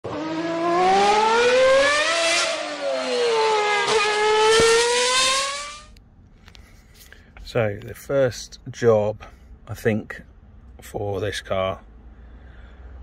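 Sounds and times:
car engine revving: 0.0s - 6.0s.

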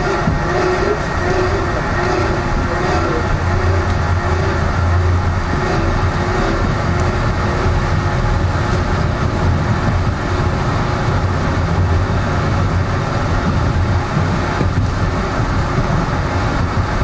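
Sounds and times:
subway train rumbling on rails: 0.0s - 17.0s.

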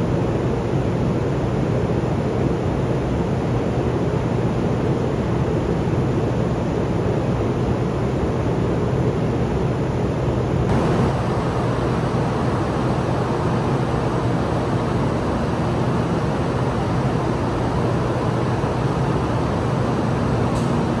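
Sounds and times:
station platform rumble and hiss: 0.0s - 21.0s.

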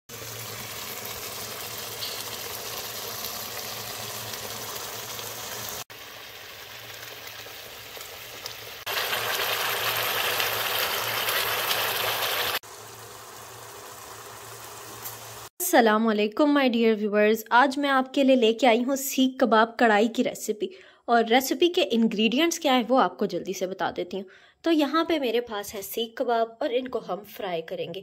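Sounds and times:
sauce bubbling and sizzling in oil: 0.1s - 15.6s.

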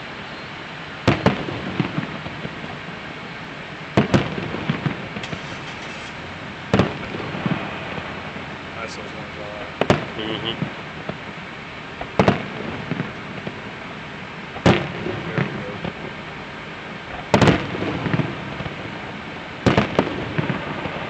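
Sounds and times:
fireworks bursting with bangs: 0.8s - 21.0s
small firework pops: 1.1s - 2.8s, 4.0s - 8.1s, 9.8s - 11.2s, 12.0s - 13.6s, 14.6s - 16.0s, 17.1s - 18.9s, 19.6s - 21.0s.

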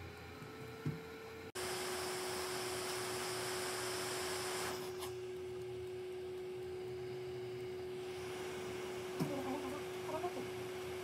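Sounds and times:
hot air station hissing: 1.6s - 5.2s, 8.0s - 11.0s
constant humming tone: 4.7s - 11.0s.

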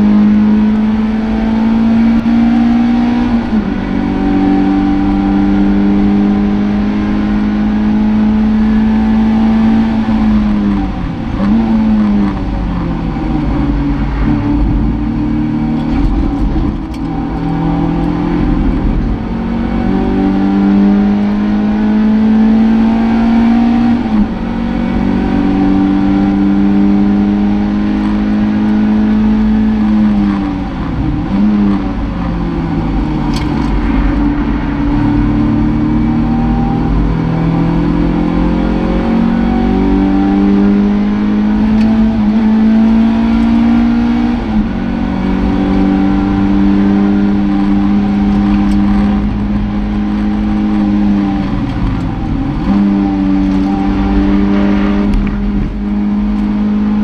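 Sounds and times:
race car engine at high revs: 0.0s - 57.0s.

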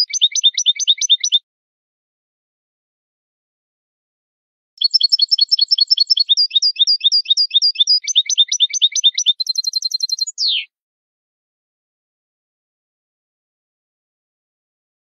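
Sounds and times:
goldfinch singing trills: 0.0s - 1.4s, 4.8s - 10.7s.

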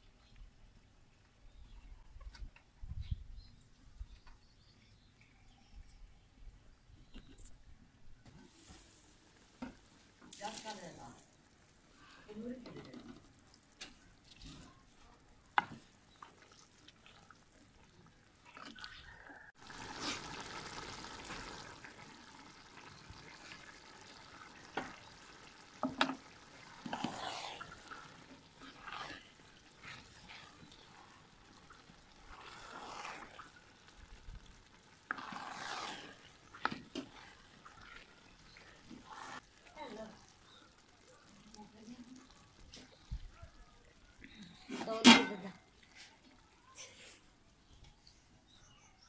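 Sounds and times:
bubbling liquid hiss: 8.3s - 14.7s, 15.7s - 44.7s
spatula scraping and sloshing: 25.8s - 33.6s, 35.0s - 39.4s.

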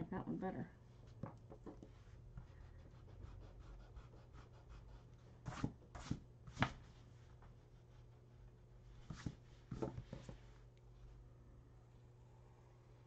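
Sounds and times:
pencil scratching on paper: 1.9s - 6.7s.

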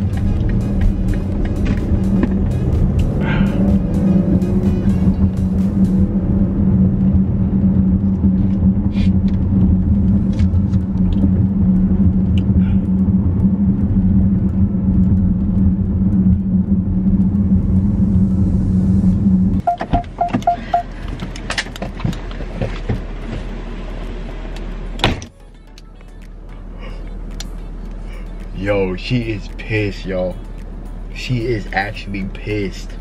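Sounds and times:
car engine idling: 0.0s - 25.1s, 26.4s - 33.0s
electronic chime beeping: 19.6s - 20.9s.

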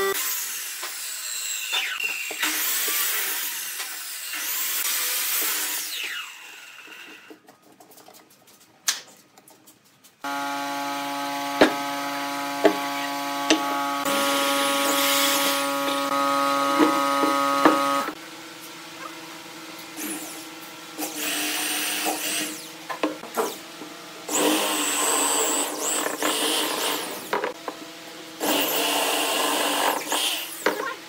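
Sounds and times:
electric drill motor running: 10.3s - 18.2s, 24.3s - 27.5s, 28.4s - 30.6s.

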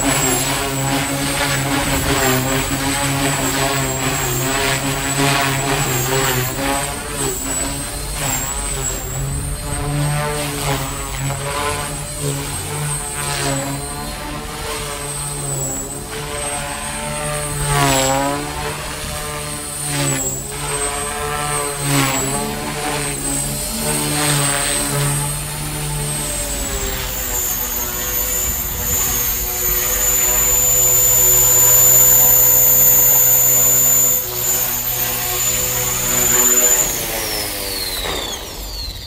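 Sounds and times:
high motor whine: 0.0s - 39.0s
rotor blades buzzing: 0.0s - 39.0s.

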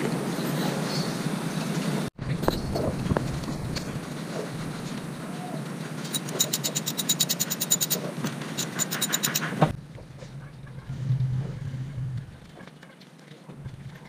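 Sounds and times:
ratchet wrench clicking rapidly: 6.1s - 8.0s, 8.6s - 9.6s.

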